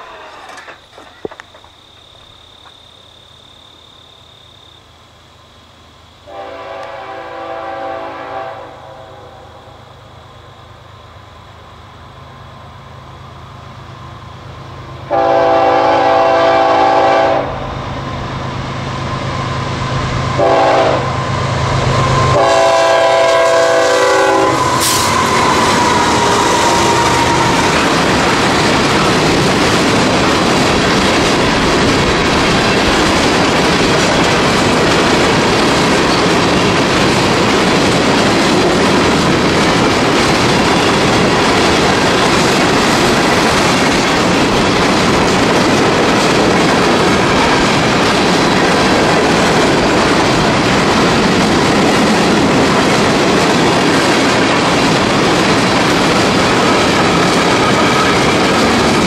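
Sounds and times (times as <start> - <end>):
steel wheels rolling on rails: 0.0 - 2.4, 17.8 - 59.0
locomotive air horn blasts: 6.3 - 9.8, 15.1 - 17.7, 20.3 - 28.0.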